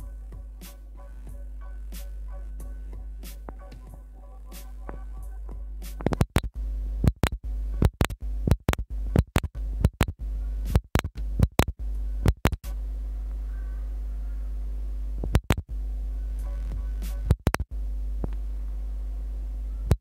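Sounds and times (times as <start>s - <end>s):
electronic music with clicks: 0.0s - 12.8s, 15.2s - 15.7s, 16.4s - 18.4s, 19.8s - 20.0s.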